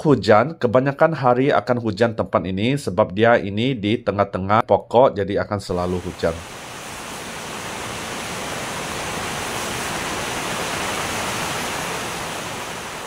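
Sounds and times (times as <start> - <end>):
heavy rain on a tent: 5.8 - 13.0.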